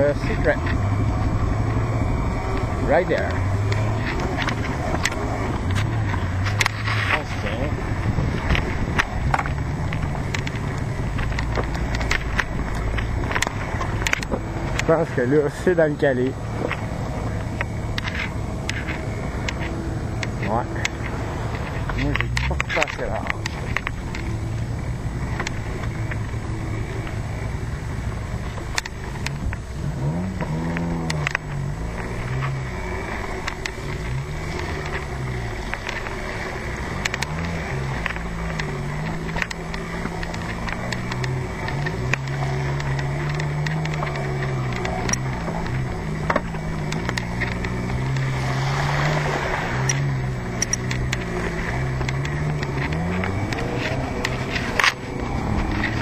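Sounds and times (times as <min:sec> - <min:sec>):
wind noise on microphone: 0:00.0 - 0:14.8
off-road vehicle motor revving: 0:00.0 - 0:56.0.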